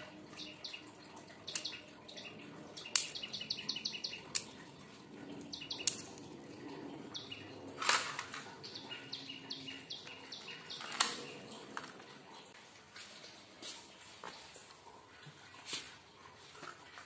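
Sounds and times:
small birds chirping: 0:00.0 - 0:07.8, 0:08.4 - 0:12.5
sharp metallic clicks: 0:02.8 - 0:04.6, 0:05.4 - 0:06.2.

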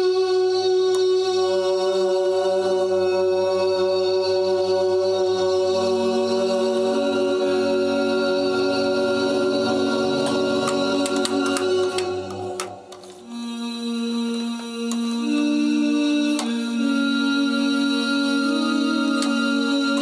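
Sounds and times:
choir-like sung voice drone: 0:00.0 - 0:20.0
clicks: 0:10.2 - 0:13.2.

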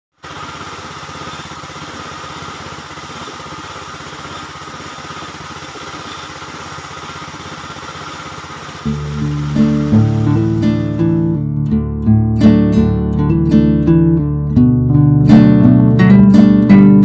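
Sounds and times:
spray gun air hiss: 0:00.2 - 0:11.2
motor chugging: 0:00.2 - 0:11.4.

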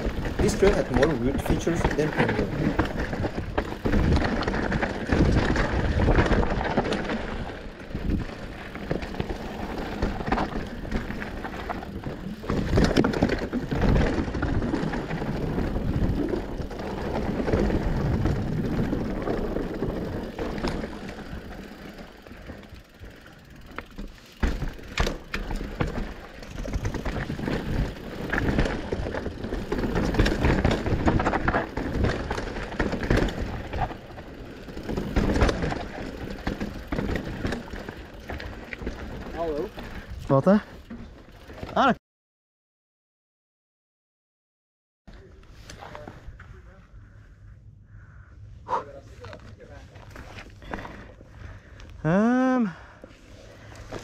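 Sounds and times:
bike rattling: 0:00.0 - 0:42.0, 0:48.7 - 0:54.0
tyres rolling on dirt: 0:00.0 - 0:42.0, 0:52.8 - 0:54.0.

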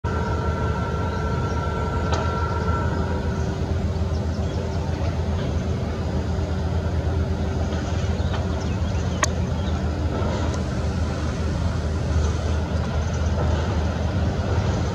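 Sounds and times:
distant vehicles rumbling: 0:00.0 - 0:14.9
faint steady hum: 0:00.1 - 0:14.9.

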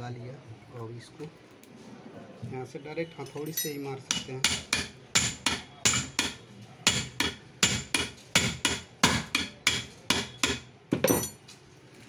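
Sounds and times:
hammer tapping on metal shaft: 0:04.1 - 0:11.3.

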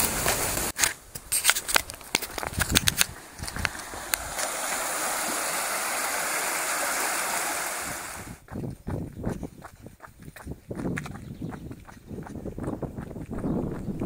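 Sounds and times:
stream flowing over stones: 0:01.6 - 0:08.4
running footsteps on a path: 0:01.8 - 0:04.6, 0:08.2 - 0:14.0.

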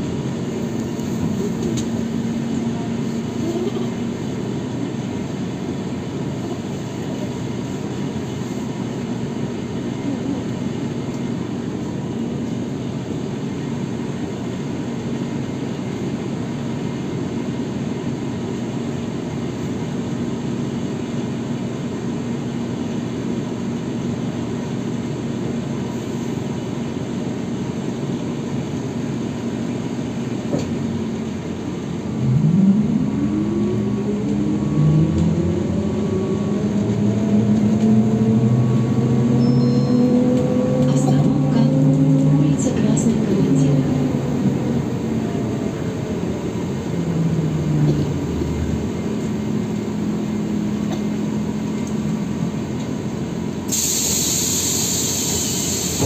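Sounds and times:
trolleybus electrical hum: 0:00.0 - 0:56.0
traction motor whine rising: 0:32.1 - 0:42.3.

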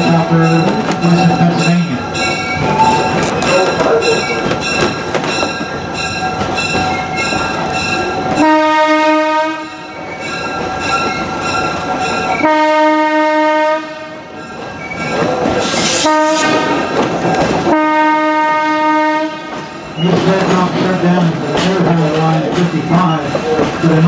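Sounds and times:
train cars rattling on rails: 0:00.0 - 0:24.0
locomotive horn blasts: 0:08.4 - 0:09.8, 0:12.4 - 0:14.3, 0:16.0 - 0:16.9, 0:17.7 - 0:19.6.

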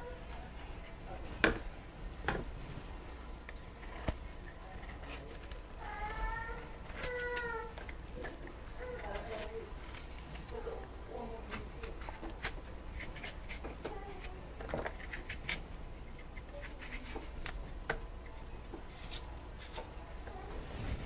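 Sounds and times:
knife cutting vegetable: 0:03.8 - 0:10.6, 0:11.4 - 0:17.6.

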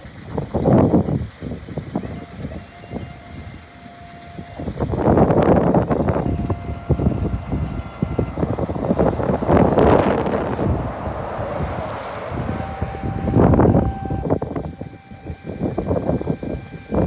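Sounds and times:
hydraulic pump running: 0:00.0 - 0:17.0
wind buffeting microphone: 0:00.0 - 0:17.0.

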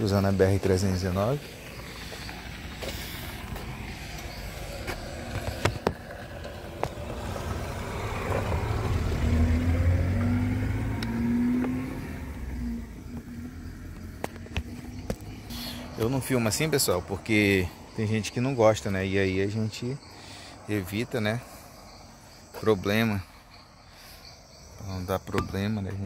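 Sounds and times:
small car driving past: 0:00.7 - 0:17.8.

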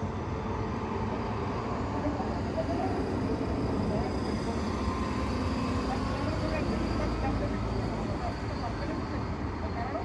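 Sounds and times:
road traffic from inside a car: 0:00.0 - 0:10.0
trucks passing: 0:00.0 - 0:10.0.

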